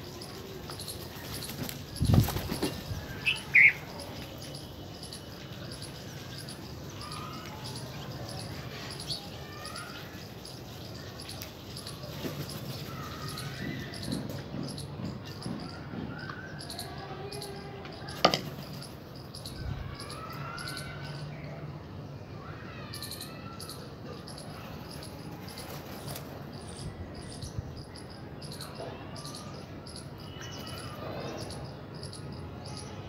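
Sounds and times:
birds chirping and whistling: 0:03.1 - 0:07.6.

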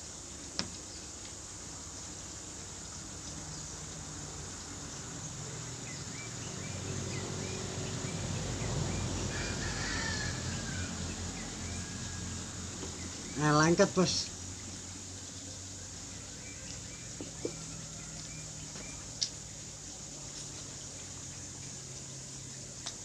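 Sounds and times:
birds chirping: 0:12.8 - 0:21.7.

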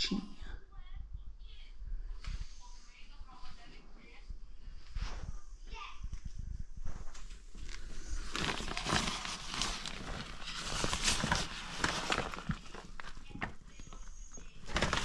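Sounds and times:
tent fabric rustling and crinkling: 0:06.9 - 0:15.0.

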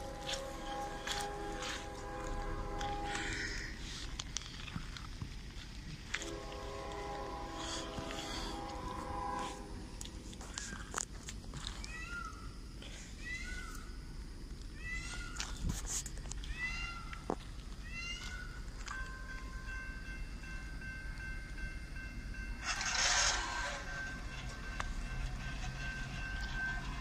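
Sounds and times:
steady high tone: 0:00.0 - 0:04.3, 0:06.2 - 0:10.5, 0:18.8 - 0:27.0.

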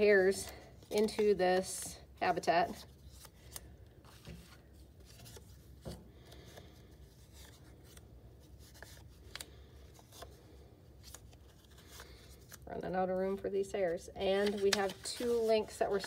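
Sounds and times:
paper rustling: 0:00.4 - 0:01.8, 0:02.7 - 0:10.4, 0:14.2 - 0:16.0.

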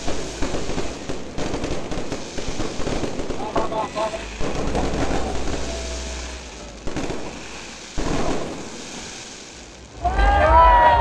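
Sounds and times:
fireworks bangs: 0:00.0 - 0:11.0
fireworks crackle: 0:00.0 - 0:11.0.

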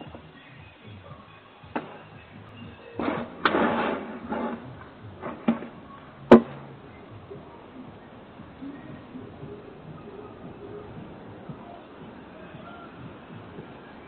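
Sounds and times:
faint background music: 0:00.0 - 0:14.0
rustling: 0:01.8 - 0:08.0.

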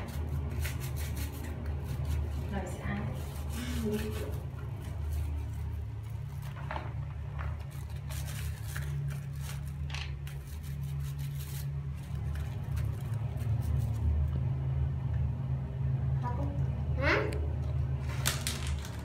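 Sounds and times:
scrub brush scratching plastic: 0:00.0 - 0:06.6, 0:07.5 - 0:14.4
steady low hum: 0:00.0 - 0:19.0.

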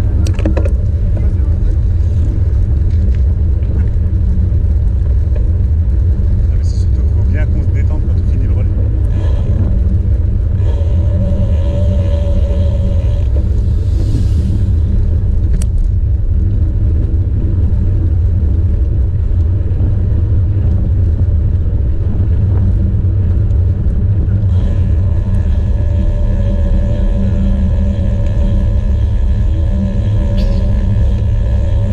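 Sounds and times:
bicycle road noise on asphalt: 0:00.0 - 0:31.9
loud wind rumble: 0:00.0 - 0:31.9.

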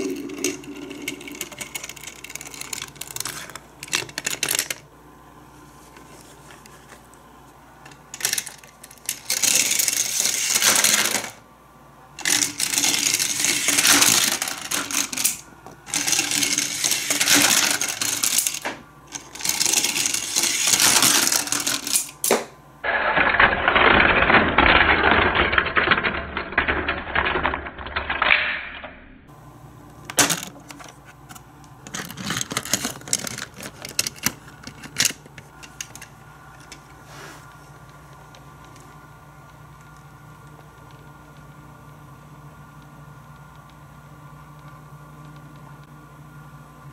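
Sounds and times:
toy vehicle clicking on plastic track: 0:00.0 - 0:04.8, 0:08.2 - 0:11.4, 0:12.2 - 0:22.2, 0:23.0 - 0:28.2, 0:31.9 - 0:36.1.

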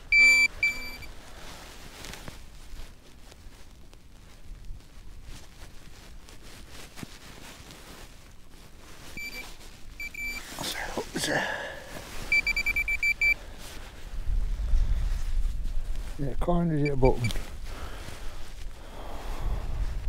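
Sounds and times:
metal detector beep: 0:00.1 - 0:01.1, 0:09.2 - 0:10.5, 0:12.3 - 0:13.4, 0:16.8 - 0:17.4.

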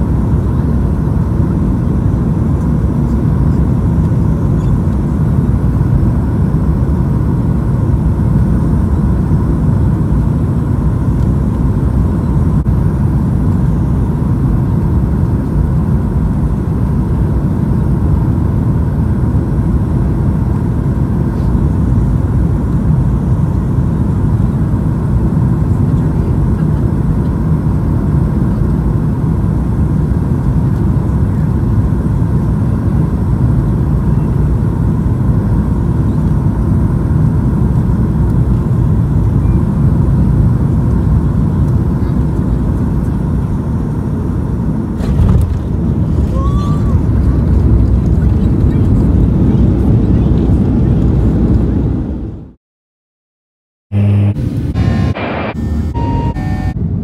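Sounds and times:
airplane cabin rumble: 0:00.0 - 0:52.6, 0:53.9 - 0:57.0
faint steady tone: 0:54.0 - 0:56.8.

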